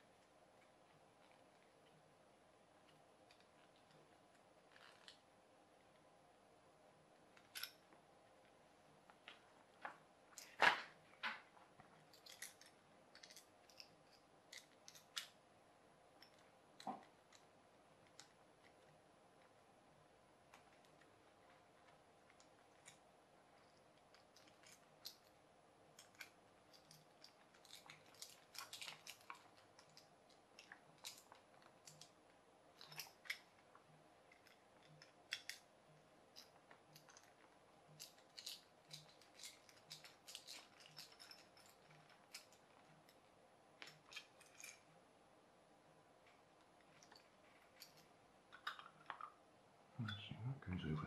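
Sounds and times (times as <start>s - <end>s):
plastic parts being handled: 9.1s - 15.4s, 23.6s - 35.7s, 36.3s - 44.8s.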